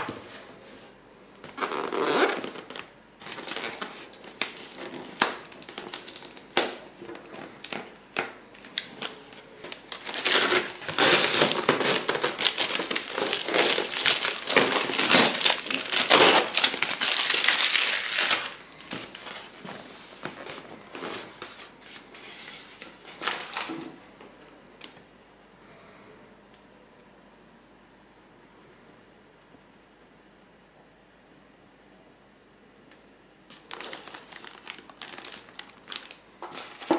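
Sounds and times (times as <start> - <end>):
packing tape peeling and crumpling: 1.5 - 20.6, 33.5 - 36.9.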